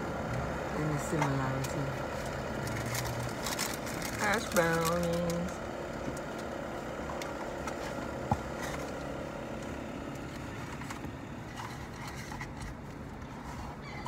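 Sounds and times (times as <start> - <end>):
vehicle cabin rumble: 0.0 - 14.0.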